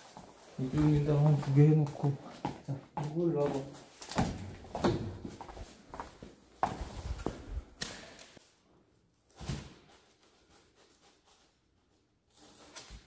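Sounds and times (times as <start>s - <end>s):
footsteps: 0.0s - 8.4s.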